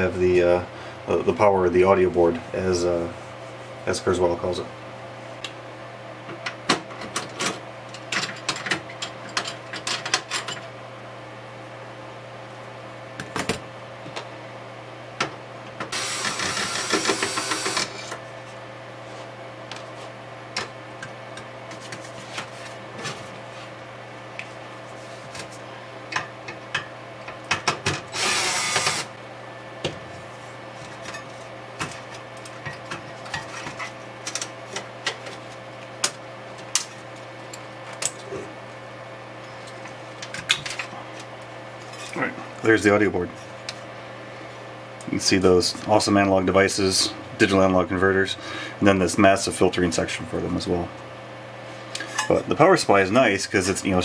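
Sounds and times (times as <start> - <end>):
electric screwdriver whirring: 15.9 - 18.1, 28.1 - 29.1.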